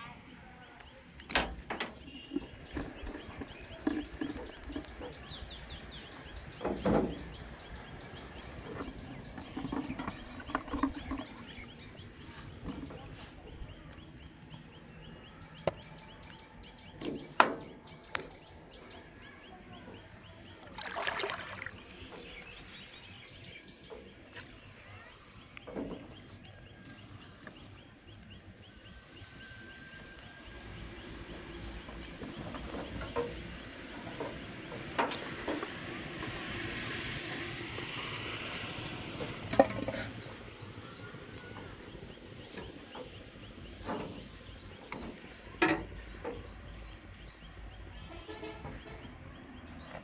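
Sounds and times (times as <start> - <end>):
outdoor ambience: 0.0 - 50.0
splash-like rustle: 20.8 - 21.8.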